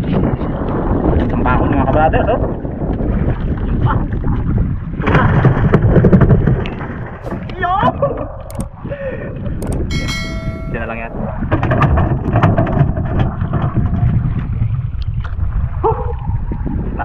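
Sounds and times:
wind rumbling on microphone: 0:00.0 - 0:17.0
sea noise: 0:09.8 - 0:11.4
brief ringing tone: 0:09.9 - 0:11.1.

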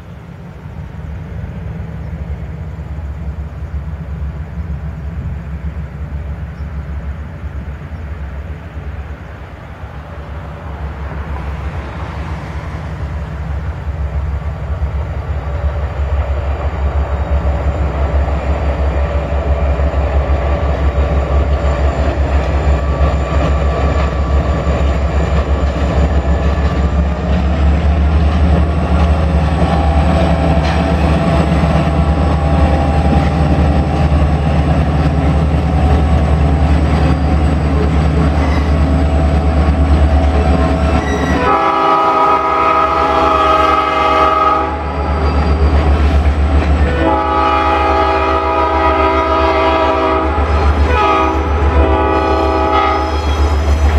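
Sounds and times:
diesel locomotive engine drone: 0:00.0 - 0:53.9
locomotive horn blasts: 0:40.2 - 0:45.0, 0:46.8 - 0:53.7.

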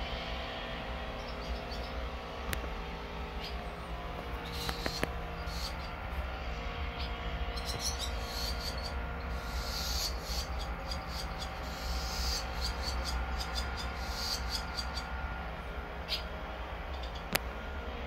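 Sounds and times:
faint hum: 0:00.0 - 0:18.0
low outdoor rumble: 0:00.0 - 0:18.0
swallow twittering: 0:01.1 - 0:02.1, 0:03.3 - 0:06.0, 0:07.0 - 0:15.2, 0:16.0 - 0:16.3, 0:16.9 - 0:17.3.

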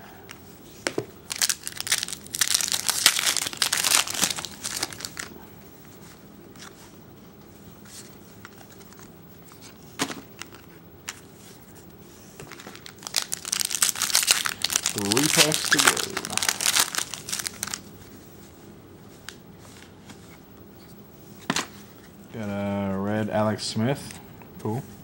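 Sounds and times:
wrapper crinkling and tearing: 0:01.3 - 0:05.3, 0:12.4 - 0:17.9.

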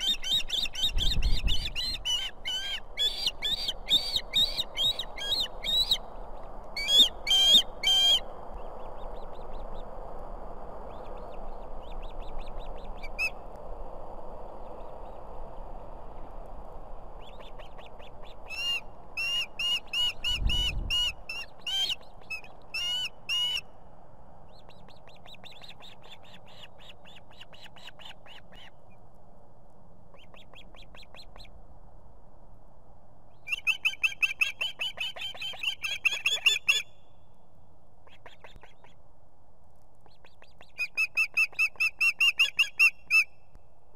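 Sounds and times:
ospreys chirping: 0:00.0 - 0:06.0.

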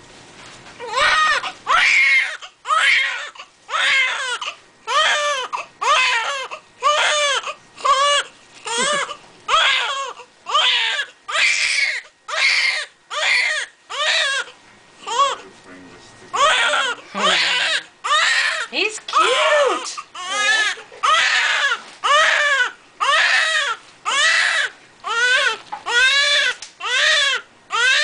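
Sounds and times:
baby crying: 0:00.8 - 0:15.5, 0:16.3 - 0:28.0.

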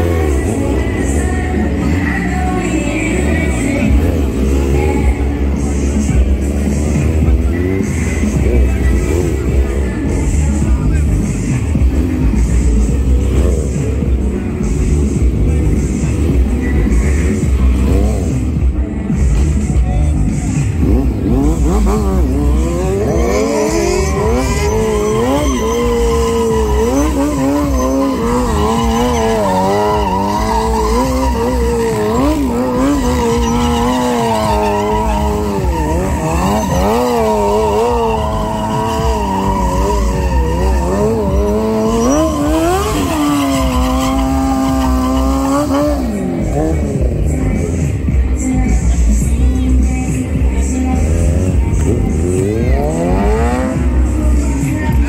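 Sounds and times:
motorcycle engine revving: 0:00.0 - 0:55.0
tyre squealing: 0:20.6 - 0:48.6.

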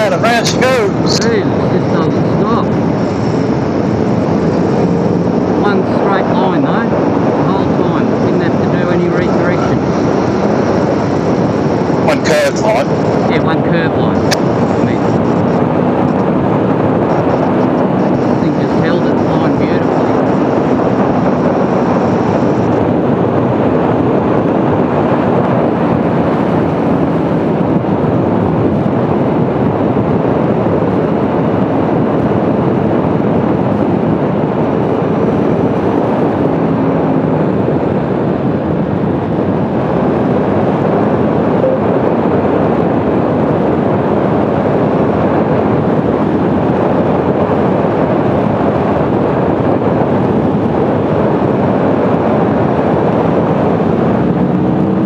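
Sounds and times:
wind noise on microphone: 0:00.0 - 0:55.0
motorcycle engine running: 0:00.1 - 0:24.6.

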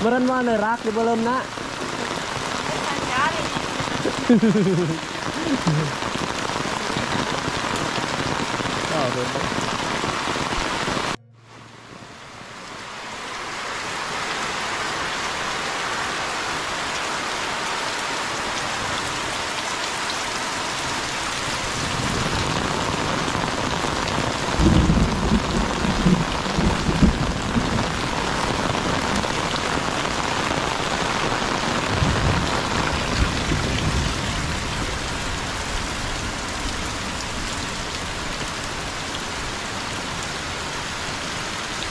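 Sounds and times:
heavy rain pouring: 0:00.0 - 0:41.9
low rumbles: 0:05.4 - 0:13.4.

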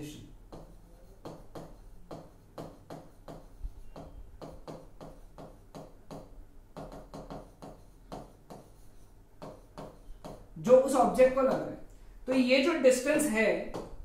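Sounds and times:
stylus tapping on glass: 0:00.5 - 0:08.6.

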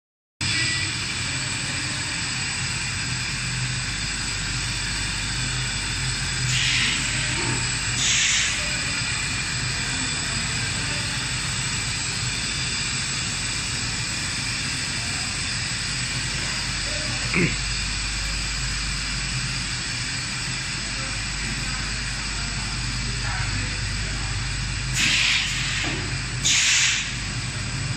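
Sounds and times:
machine hum and hiss: 0:00.4 - 0:27.9
brief loud hisses: 0:06.5 - 0:08.6, 0:25.0 - 0:27.3.

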